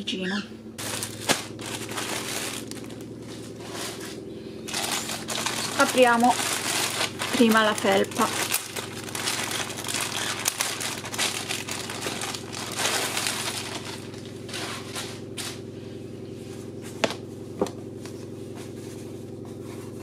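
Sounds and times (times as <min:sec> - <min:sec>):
steady low hum: 0:00.0 - 0:20.0
plastic bag crinkling: 0:00.8 - 0:04.1, 0:04.7 - 0:15.4.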